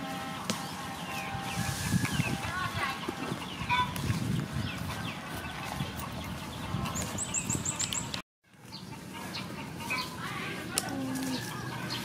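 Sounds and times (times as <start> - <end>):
birds chirping and clucking: 0.2 - 12.0
high bird chirps: 6.2 - 10.2.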